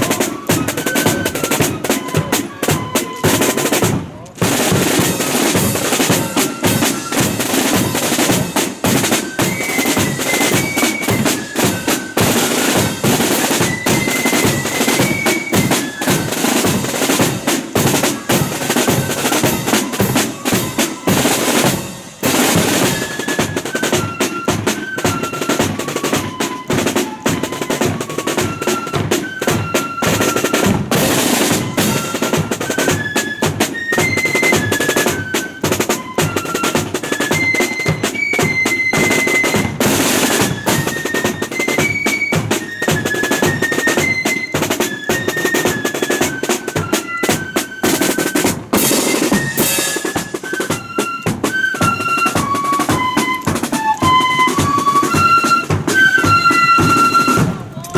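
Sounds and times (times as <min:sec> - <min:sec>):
flutes playing melody: 0:00.0 - 0:57.9
snare drums rattling: 0:00.0 - 0:57.9.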